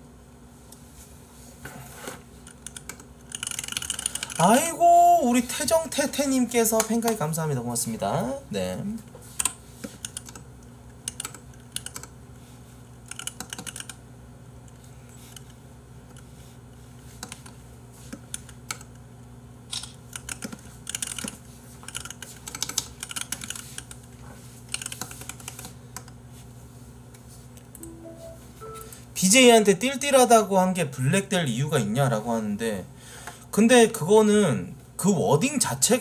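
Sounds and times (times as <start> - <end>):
low steady hum: 0.0 - 36.0
keyboard typing clicks: 2.6 - 4.4, 9.4 - 10.4, 11.1 - 12.1, 13.1 - 14.0, 19.7 - 23.9, 27.7 - 29.0.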